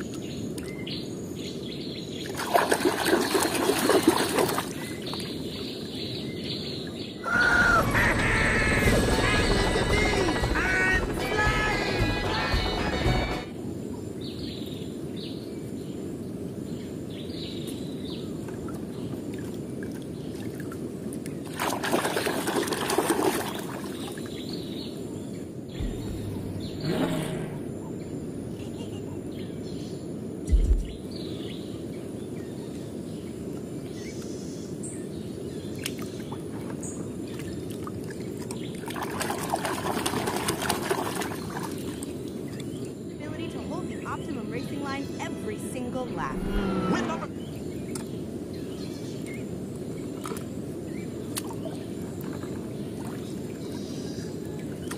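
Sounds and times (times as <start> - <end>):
rushing water noise: 2.2 - 5.5, 7.2 - 13.8, 18.4 - 24.3, 35.8 - 42.6
water sloshing in plastic tub: 2.3 - 4.9, 36.6 - 42.1.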